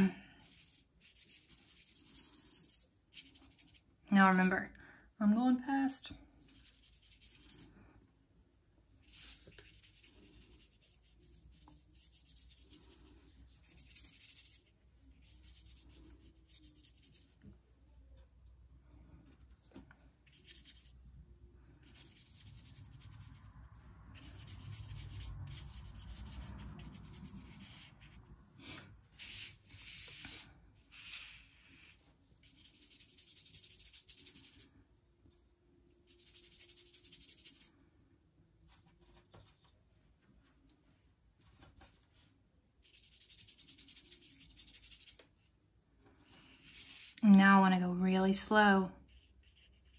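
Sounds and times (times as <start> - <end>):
paintbrush strokes on paper: 0.4 - 4.6, 6.4 - 8.0, 8.9 - 17.4, 19.2 - 21.0, 21.8 - 34.7, 36.0 - 37.7, 40.8 - 45.5, 46.2 - 49.9.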